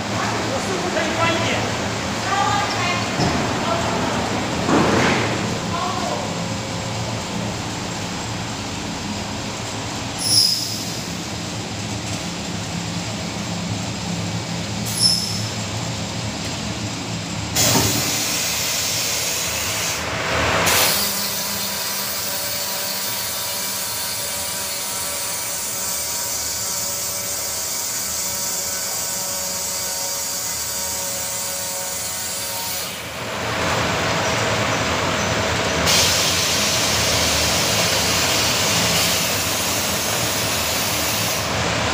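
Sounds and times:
machine hum: 0:00.0 - 0:41.9
hiss: 0:10.2 - 0:11.1, 0:14.8 - 0:15.5, 0:17.6 - 0:33.0, 0:35.8 - 0:41.6.

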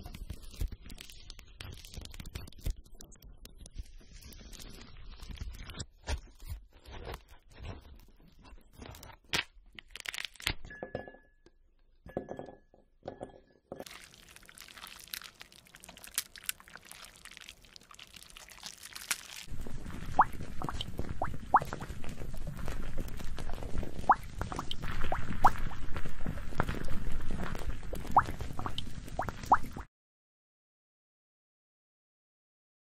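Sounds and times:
crisp clicks and crackles: 0:00.0 - 0:10.6, 0:13.8 - 0:29.8
crunching and clinking: 0:05.2 - 0:11.5, 0:12.1 - 0:29.0.

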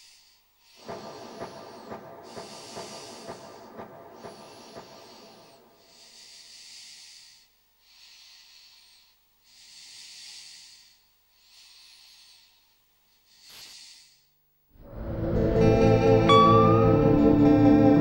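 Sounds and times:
soft breath-like hissing: 0:00.0 - 0:14.4
music with plucked strings: 0:15.3 - 0:18.0.

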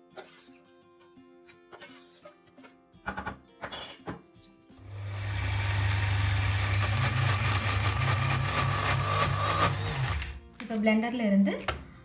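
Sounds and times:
electric blender grinding: 0:04.8 - 0:10.4.

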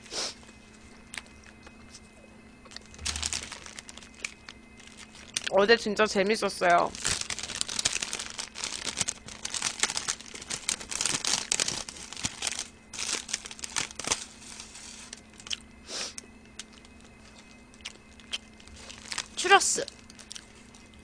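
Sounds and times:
paper sleeve crinkling: 0:02.7 - 0:05.6, 0:06.7 - 0:15.3, 0:18.6 - 0:20.8.

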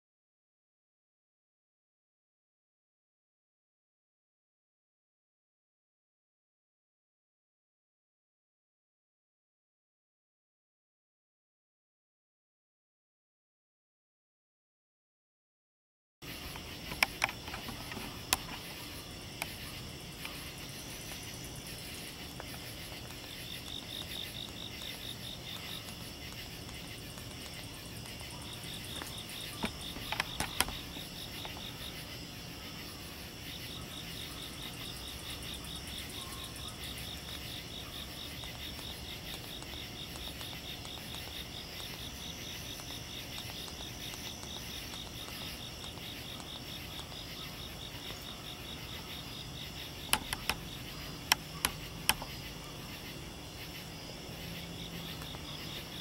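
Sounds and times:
faint outdoor hiss: 0:16.2 - 0:56.0
insects trilling: 0:16.2 - 0:56.0
sharp clicks: 0:16.6 - 0:18.8, 0:22.2 - 0:31.8, 0:49.8 - 0:52.4.

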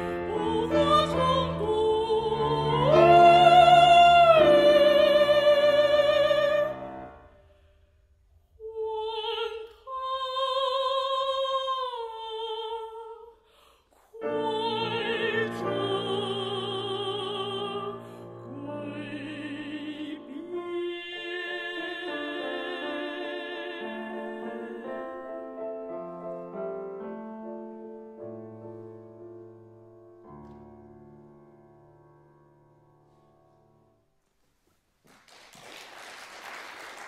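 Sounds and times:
woman singing opera: 0:00.0 - 0:07.0, 0:08.6 - 0:25.5
piano accompaniment: 0:00.0 - 0:07.3, 0:14.2 - 0:34.1.

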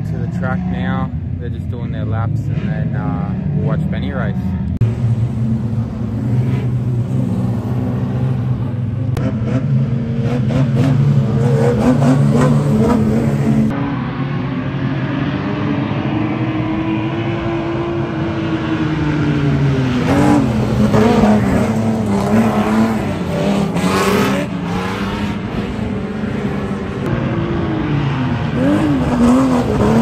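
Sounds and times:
race car engines at high revs: 0:00.0 - 0:30.0.

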